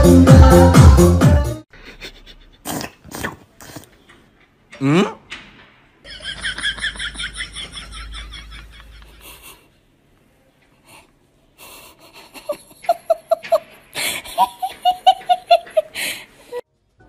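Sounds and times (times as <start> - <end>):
person laughing hard: 6.1 - 9.6, 12.0 - 16.6
wheezy gasping breaths: 10.8 - 12.6, 13.9 - 14.5, 15.7 - 16.6.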